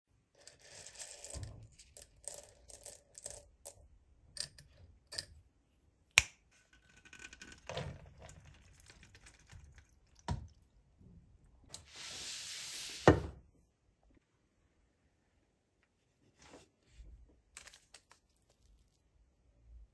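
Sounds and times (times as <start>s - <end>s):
macaroni rattling in glass jar: 0.4s - 3.7s, 6.9s - 10.2s
macaroni pouring hiss: 11.8s - 13.2s.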